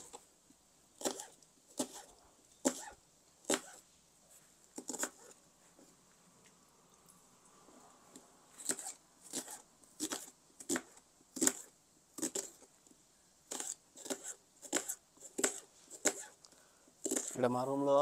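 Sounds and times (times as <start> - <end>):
knife slicing onion on board: 1.0 - 3.8, 4.8 - 5.3, 8.6 - 12.6, 13.5 - 16.4, 17.0 - 17.4.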